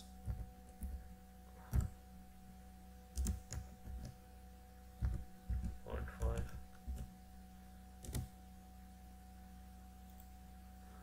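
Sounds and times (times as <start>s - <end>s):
keyboard typing: 0.0s - 2.0s, 3.1s - 4.2s, 5.0s - 7.1s, 8.0s - 8.4s
steady electrical hum: 0.0s - 11.0s.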